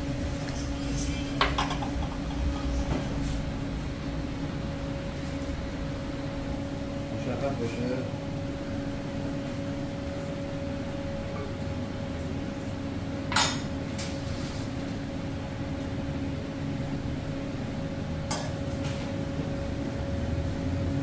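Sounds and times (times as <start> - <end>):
kitchen hum: 0.0 - 21.0
metal bowls clinking on grill: 1.4 - 2.5, 18.3 - 19.0.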